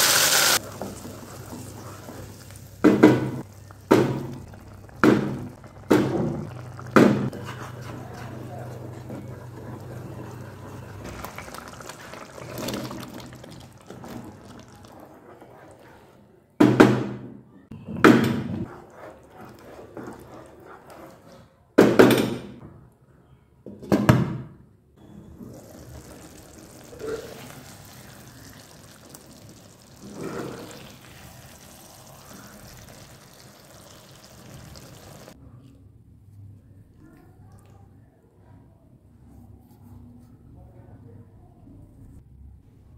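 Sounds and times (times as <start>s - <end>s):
wooden spatula stirring thick sauce: 0.6s - 16.2s, 18.7s - 21.5s, 25.7s - 35.4s.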